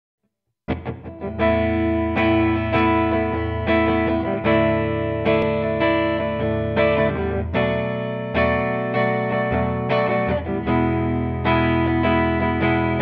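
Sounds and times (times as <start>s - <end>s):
clean electric guitar chords: 0.7s - 13.0s.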